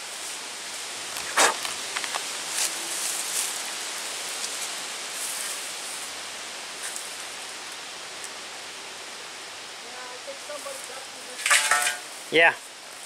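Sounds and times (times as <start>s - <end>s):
leaves and branches rustling: 0.0s - 13.0s
steady outdoor hiss: 0.0s - 13.0s
short swishes: 1.3s - 1.6s.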